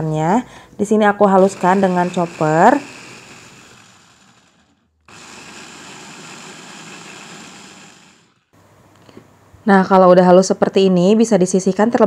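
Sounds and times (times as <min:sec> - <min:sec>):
electric food chopper whirring: 0:01.4 - 0:08.6.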